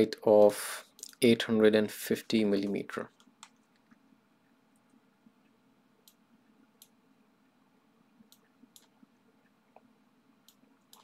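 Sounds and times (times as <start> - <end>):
computer mouse clicks: 4.8 - 6.2, 8.2 - 9.0, 9.7 - 11.0.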